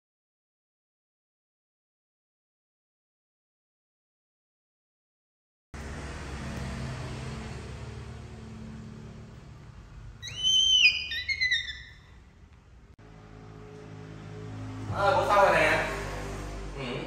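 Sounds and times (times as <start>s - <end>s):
high-pitched whistle-like call: 10.2s - 12.2s.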